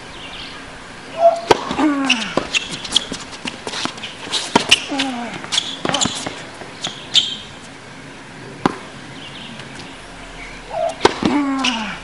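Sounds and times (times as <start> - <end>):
tennis ball knocks: 8.6 - 8.9, 10.8 - 11.4.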